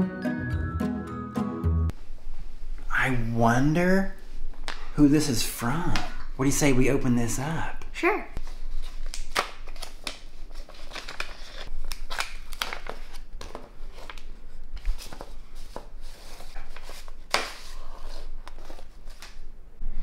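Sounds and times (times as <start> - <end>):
paper envelope rustling: 8.4 - 19.5.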